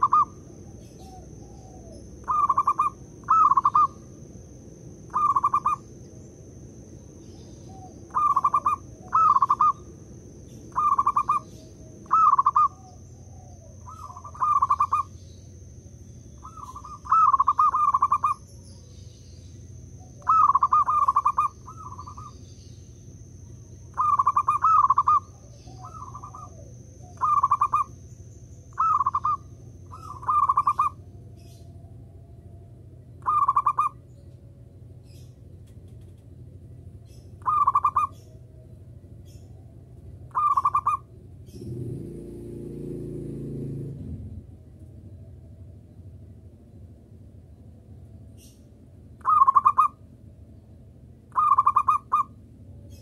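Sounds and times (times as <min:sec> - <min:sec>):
dove cooing trills: 0:00.0 - 0:06.0, 0:07.2 - 0:15.4, 0:16.3 - 0:19.0, 0:20.0 - 0:22.7, 0:23.5 - 0:34.2, 0:37.1 - 0:44.1, 0:49.2 - 0:50.0, 0:51.3 - 0:53.0.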